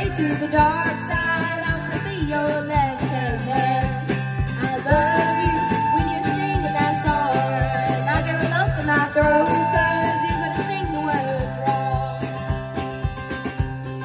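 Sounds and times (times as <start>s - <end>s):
drum kit beat: 0.0s - 14.0s
strummed acoustic guitar: 0.0s - 14.0s
flute: 4.6s - 13.7s.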